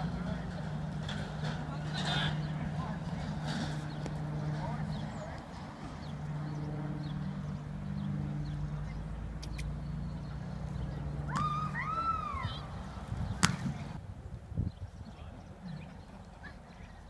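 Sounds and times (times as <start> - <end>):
steady low hum: 0.0 - 14.5
rising and falling whoops: 11.3 - 12.7.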